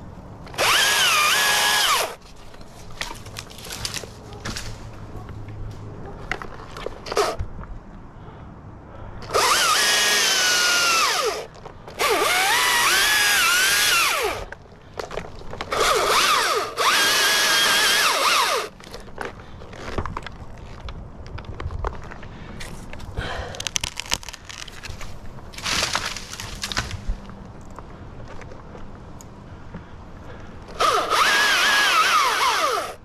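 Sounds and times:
electric chainsaw cutting wood: 0.6 - 2.2, 9.2 - 14.5, 15.7 - 18.7, 30.7 - 33.0.

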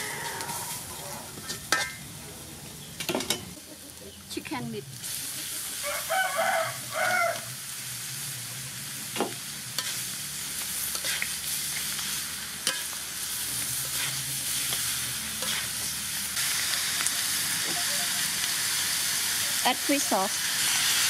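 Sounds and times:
metal spatula scraping wok: 0.0 - 2.0, 9.6 - 16.3
chicken sizzling in hot oil: 2.8 - 21.0.

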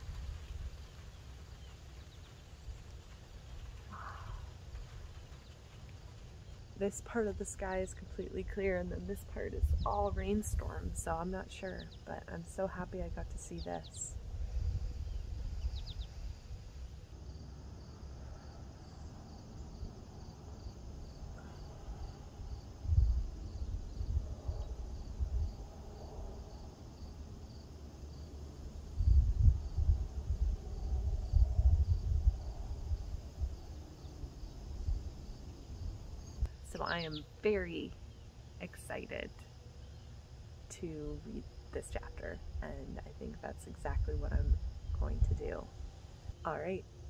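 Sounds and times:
wind rumbling on microphone: 0.0 - 17.0, 17.9 - 37.6, 40.8 - 46.8
insects chirping: 13.5 - 40.7.

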